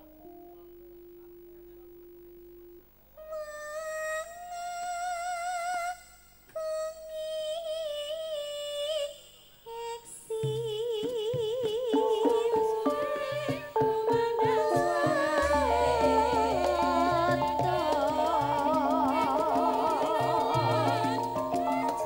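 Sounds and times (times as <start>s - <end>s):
women singing over pa: 7.4s - 22.0s
band with steady drum beat: 12.0s - 22.0s.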